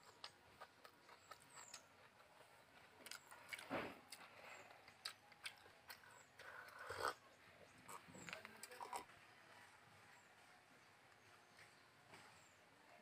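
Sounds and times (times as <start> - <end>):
person chewing food: 0.0 - 9.1.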